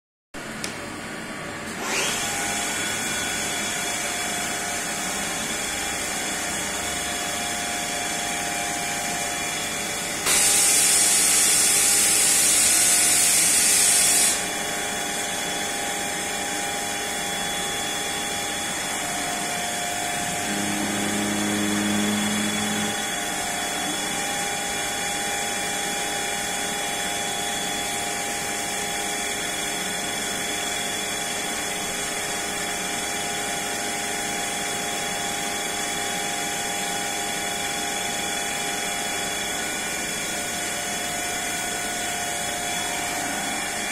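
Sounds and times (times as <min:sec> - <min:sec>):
machine humming and whining: 0:00.6 - 0:34.6
low drone: 0:18.3 - 0:24.8.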